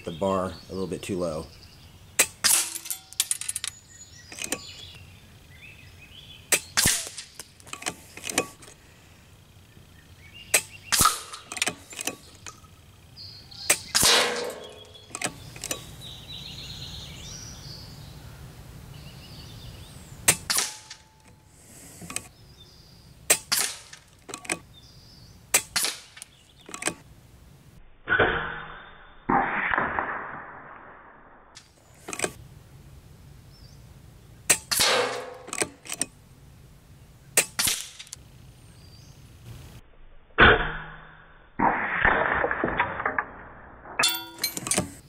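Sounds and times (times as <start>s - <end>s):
air rifle shots: 2.2s - 3.0s, 6.5s - 8.7s, 10.5s - 12.3s, 13.6s - 15.8s, 20.2s - 21.2s, 23.3s - 24.2s, 25.5s - 27.0s, 34.5s - 35.8s
pellet hitting target: 13.7s - 15.0s.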